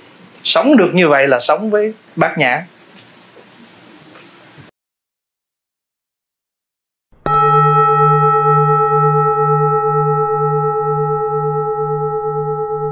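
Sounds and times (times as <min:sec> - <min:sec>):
struck bell ringing: 0:07.2 - 0:12.9.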